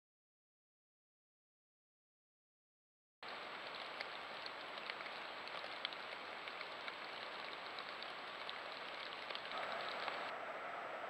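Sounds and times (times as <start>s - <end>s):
raindrops ticking: 3.2s - 10.3s
steady rain falling: 3.2s - 11.0s.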